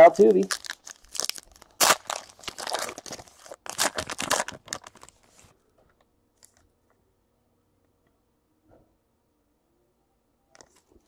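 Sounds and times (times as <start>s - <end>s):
foil wrapper tearing and crinkling: 0.4s - 5.5s.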